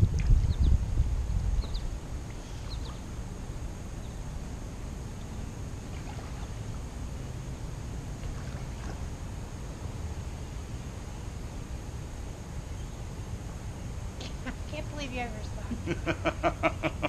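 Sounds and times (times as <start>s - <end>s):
heavy low rumble: 0.0s - 4.9s
pool water lapping: 5.4s - 9.6s.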